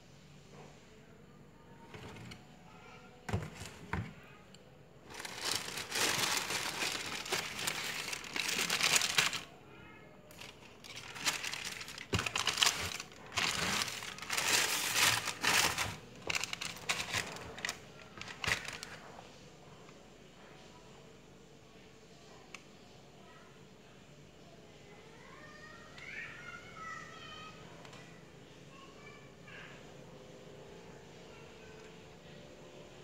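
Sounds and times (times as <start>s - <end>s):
tissue paper rustling: 5.1s - 9.5s, 10.3s - 19.0s.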